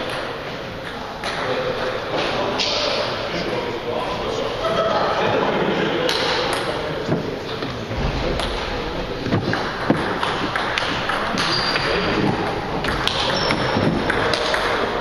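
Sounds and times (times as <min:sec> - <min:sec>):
hall background noise: 0:00.0 - 0:15.0
ping pong ball tapping: 0:12.8 - 0:14.9.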